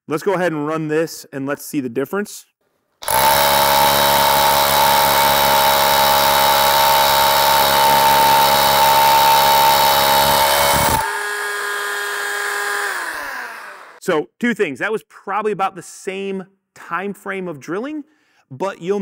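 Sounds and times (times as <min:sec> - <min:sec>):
rotary hammer drilling concrete: 0:03.0 - 0:14.0.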